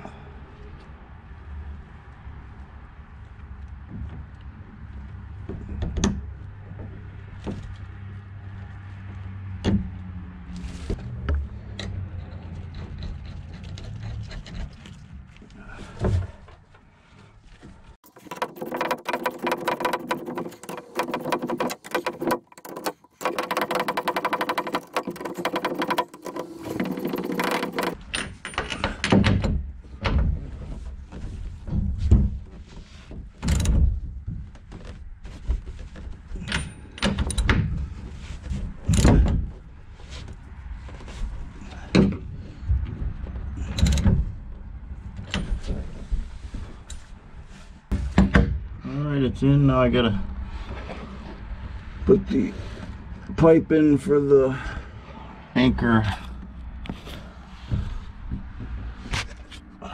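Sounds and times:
metal knocks and clinks: 18.0 - 29.5.

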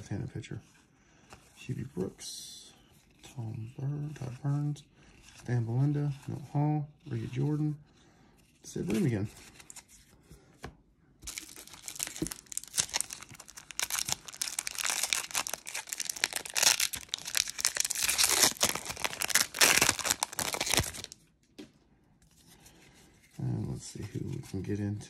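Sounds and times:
foil wrapper crinkling and tearing: 11.3 - 21.2.

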